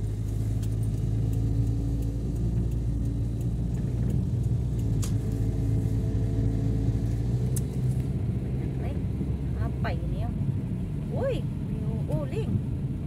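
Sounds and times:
car engine and road drone: 0.0 - 13.0.

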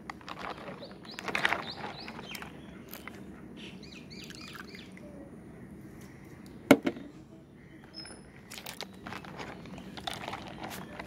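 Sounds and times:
bird chirping: 0.4 - 5.0, 7.6 - 11.0.

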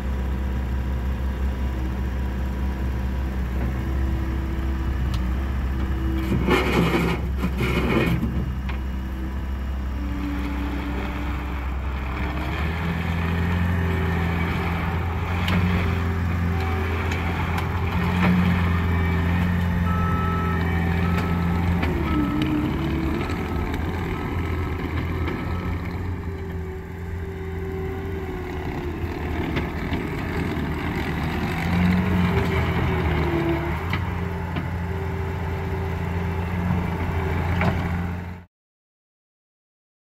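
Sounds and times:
diesel engine running: 0.0 - 38.5
hydraulic whine: 5.1 - 34.7.

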